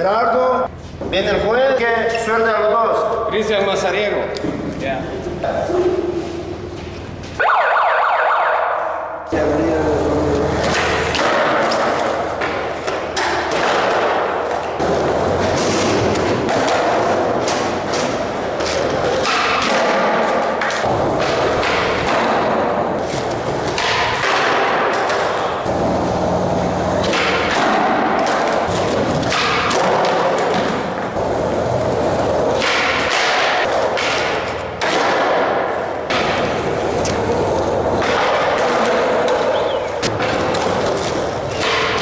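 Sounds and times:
skateboard wheels rolling on concrete: 8.8s - 42.0s
skateboard thuds and clacks: 10.5s - 42.0s.

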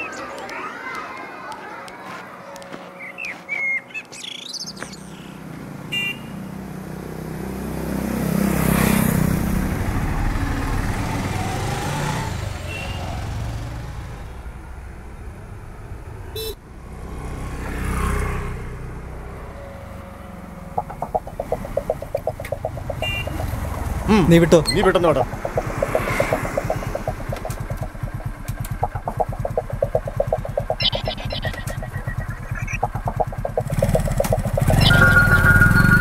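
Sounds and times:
birds chirping: 0.0s - 1.4s, 2.4s - 6.2s, 20.7s - 36.0s
auto-rickshaw engine passing: 4.7s - 29.4s, 30.0s - 36.0s
motor scooter passing: 5.4s - 36.0s.

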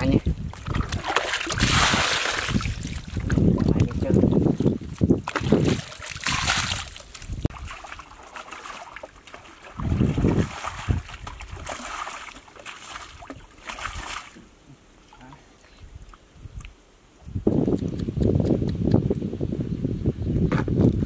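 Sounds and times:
water splashing from basin: 0.4s - 14.4s.

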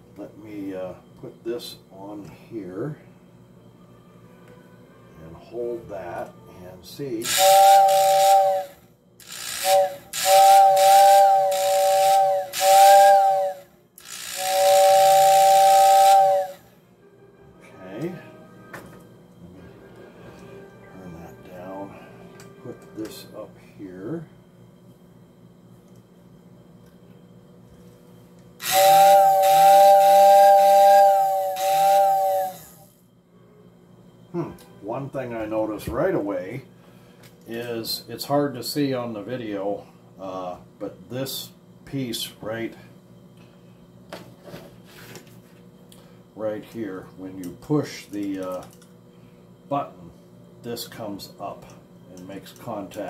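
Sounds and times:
fan air hissing: 0.0s - 4.3s, 5.0s - 17.1s, 17.7s - 53.0s
model train whistle blasts: 7.2s - 16.8s, 28.6s - 33.0s.

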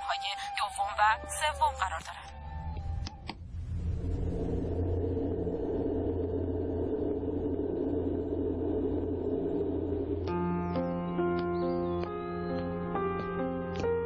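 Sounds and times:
low rumble with deep hum: 2.4s - 11.4s
soft piano music: 10.3s - 14.0s.

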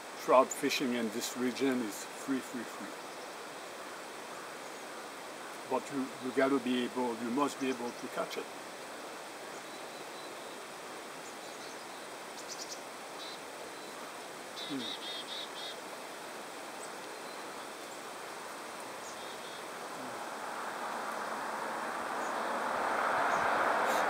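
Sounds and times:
outdoor background hiss: 0.0s - 24.0s
small bird chirping: 11.2s - 15.8s.

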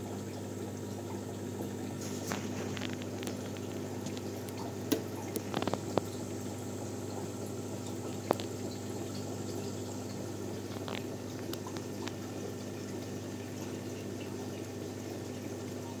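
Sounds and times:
aquarium filter bubbling: 0.0s - 16.0s
sharp clicks and pops: 2.3s - 6.1s, 8.1s - 8.6s, 10.7s - 12.2s.

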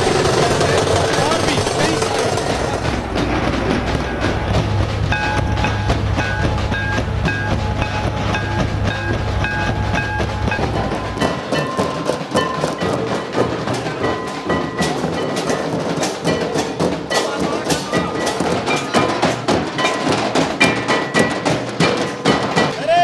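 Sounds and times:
low rumble: 0.0s - 11.8s
folk drumming: 0.0s - 23.0s
melody: 3.9s - 15.7s.

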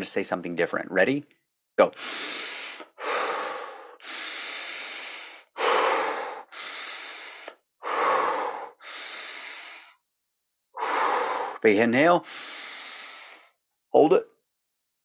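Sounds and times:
man breathing deeply: 2.0s - 10.0s, 10.8s - 13.6s.

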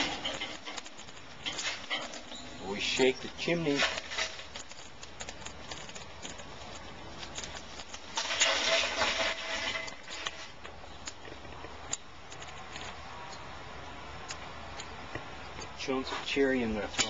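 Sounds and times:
charcoal clattering: 0.0s - 13.0s.

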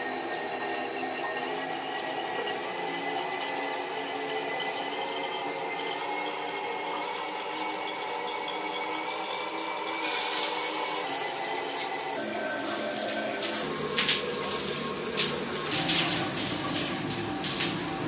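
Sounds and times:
shower spray hissing: 10.0s - 18.0s.

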